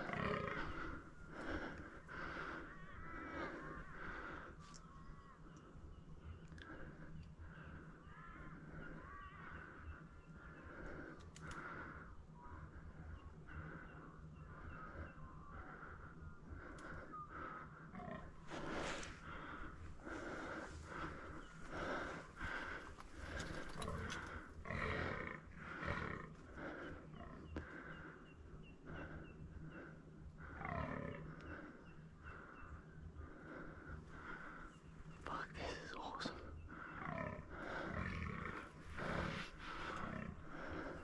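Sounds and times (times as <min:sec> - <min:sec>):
deer croaking: 0:00.0 - 0:04.3, 0:17.9 - 0:27.4, 0:36.8 - 0:41.0.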